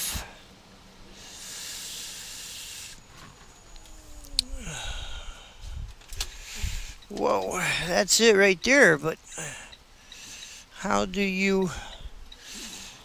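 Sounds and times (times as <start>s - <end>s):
whine sliding down in pitch: 3.2s - 5.6s.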